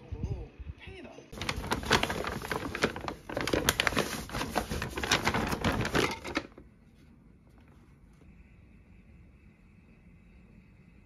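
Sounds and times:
paper bag rustling and crinkling: 0:01.3 - 0:07.0.

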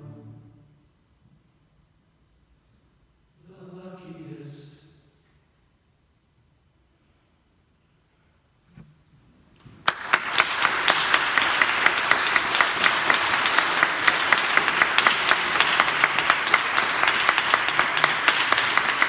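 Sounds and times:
audience applause: 0:09.8 - 0:19.0
person clapping loudly close by: 0:09.8 - 0:19.0.

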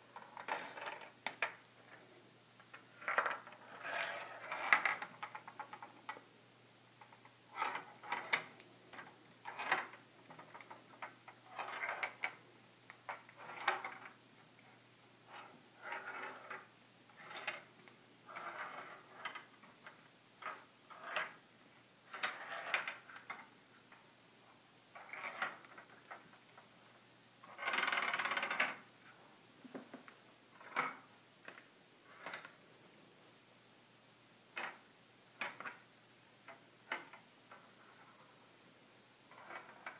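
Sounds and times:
ball rolling in plastic maze: 0:00.1 - 0:02.0, 0:02.6 - 0:06.2, 0:07.0 - 0:12.4, 0:13.1 - 0:14.2, 0:15.2 - 0:21.4, 0:22.0 - 0:23.5, 0:24.9 - 0:26.4, 0:27.4 - 0:28.9, 0:39.3 - 0:39.9.

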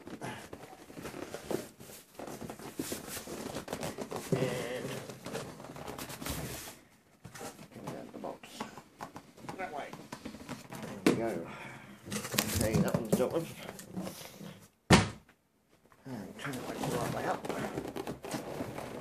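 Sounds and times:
cardboard box scraping and knocking: 0:00.2 - 0:08.1, 0:16.5 - 0:19.0.

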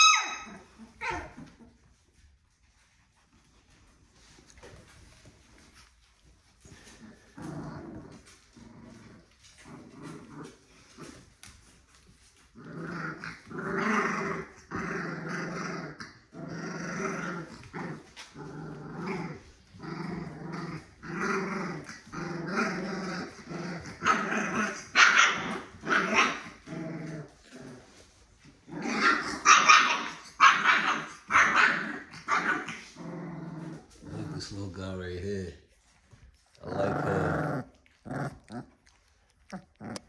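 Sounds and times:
puppy barking: 0:00.0 - 0:01.4, 0:24.0 - 0:26.5, 0:29.0 - 0:32.8
puppy growling: 0:00.0 - 0:40.0.

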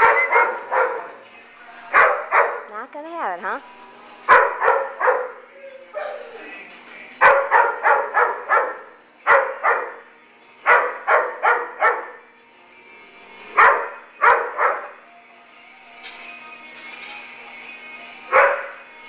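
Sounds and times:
dog barking: 0:00.0 - 0:01.2, 0:01.9 - 0:02.7, 0:04.3 - 0:06.4, 0:07.2 - 0:10.1, 0:10.7 - 0:12.2, 0:13.6 - 0:15.0, 0:18.3 - 0:18.8.

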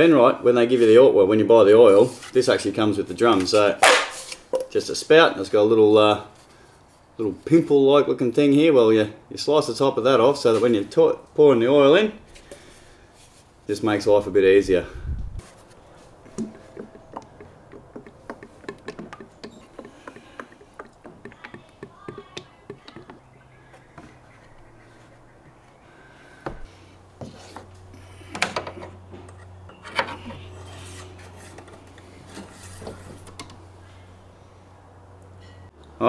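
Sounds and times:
plastic drum ticks and taps: 0:16.3 - 0:23.2
sharp knocks: 0:16.3 - 0:23.2.

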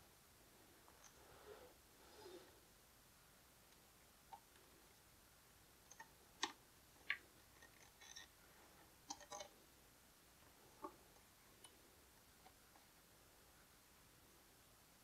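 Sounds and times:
plastic toy parts clicking: 0:09.1 - 0:09.5.

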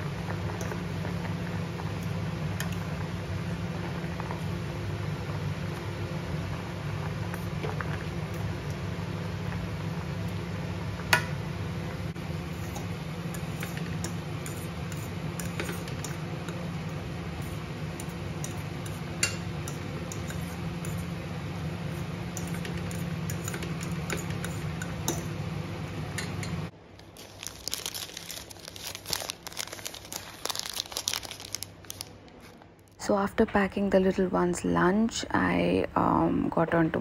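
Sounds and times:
low mechanical hum: 0:00.0 - 0:37.0
plastic wrapping crinkling: 0:26.9 - 0:32.6.

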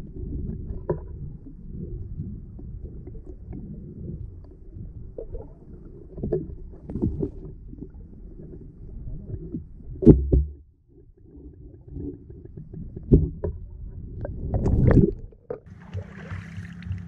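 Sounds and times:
underwater rumble of moving water: 0:00.0 - 0:17.0.

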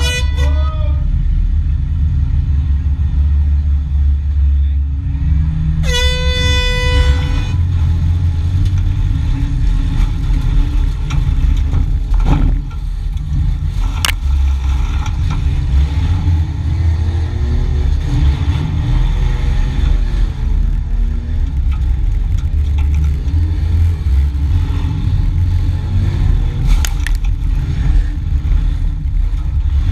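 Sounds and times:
car horn: 0:00.0 - 0:01.1, 0:05.8 - 0:07.8
car engine revving: 0:00.0 - 0:29.9
car bodies crashing: 0:09.0 - 0:15.8.

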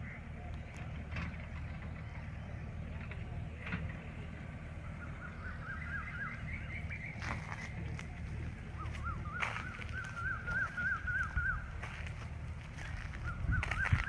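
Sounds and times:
steady low rumble: 0:00.0 - 0:14.0
bird chirping: 0:04.8 - 0:12.2.

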